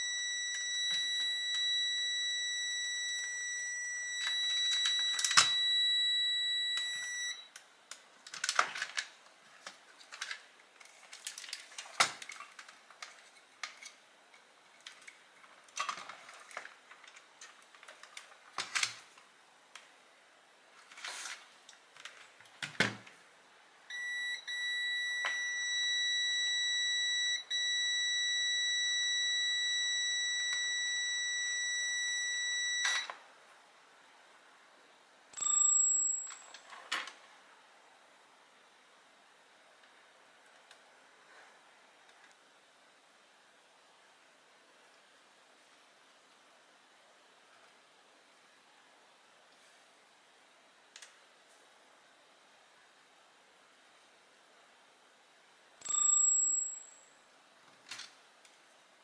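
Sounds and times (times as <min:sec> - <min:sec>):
high-pitched electronic beep tone: 0:00.0 - 0:07.5, 0:23.9 - 0:33.1.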